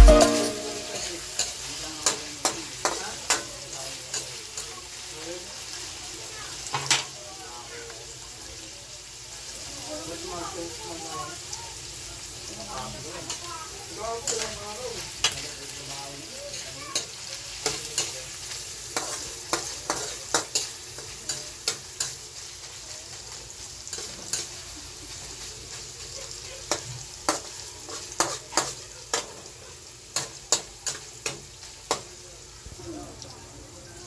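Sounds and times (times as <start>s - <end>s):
chicken sizzling in wok: 0.0s - 34.0s.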